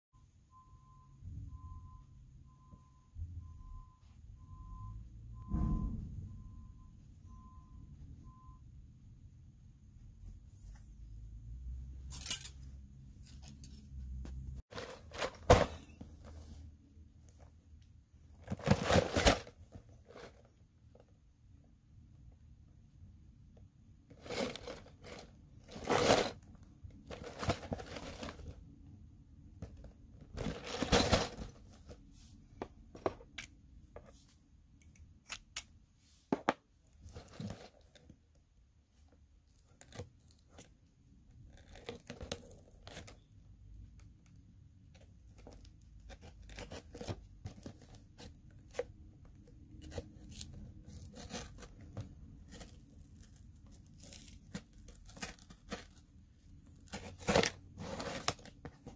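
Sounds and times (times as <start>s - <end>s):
packaging rustling: 24.2s - 26.4s, 27.0s - 28.6s.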